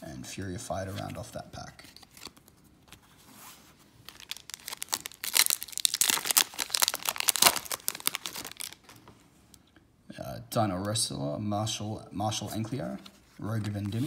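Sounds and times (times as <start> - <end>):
card handling: 4.0 - 9.1
foil wrapper tearing and crinkling: 4.1 - 8.9.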